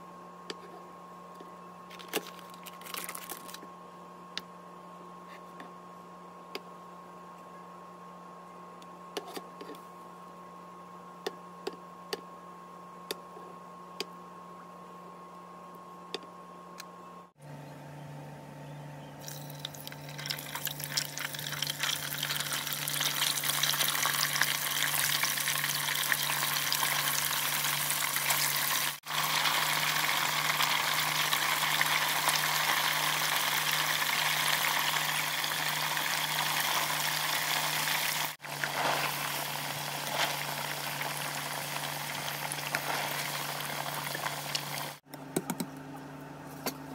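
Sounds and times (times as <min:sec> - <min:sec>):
tofu sizzling in hot oil: 0:20.2 - 0:45.0.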